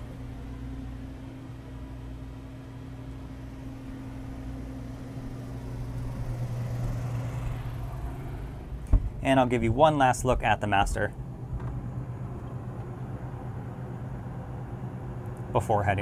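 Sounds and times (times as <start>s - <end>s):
air conditioning humming: 0.0s - 16.0s.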